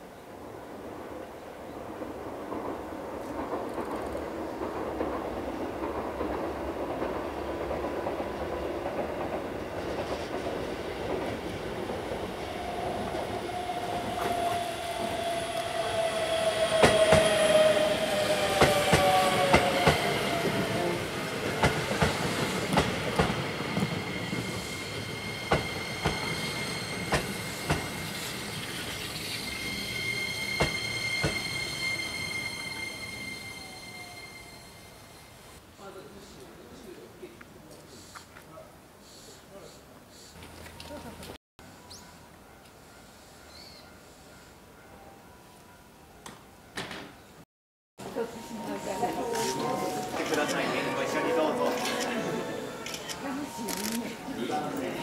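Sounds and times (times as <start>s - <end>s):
train rumble: 0.4s - 35.5s
high steady squeal: 23.4s - 35.6s
wheel squeal: 23.5s - 35.5s.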